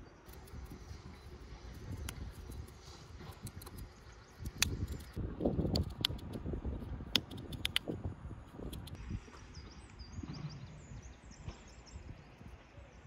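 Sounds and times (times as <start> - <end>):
small bird chirping: 0.0 - 6.4, 7.1 - 7.9
crisp clicks: 1.8 - 6.4, 7.1 - 7.9.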